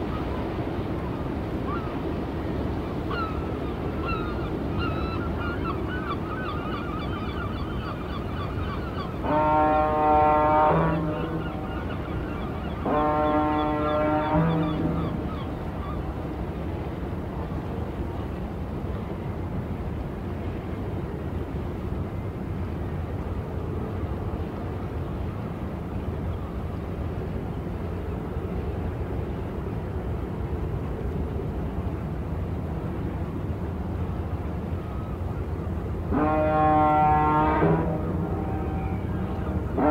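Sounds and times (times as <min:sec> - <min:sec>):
horn note: 0:36.1 - 0:38.9.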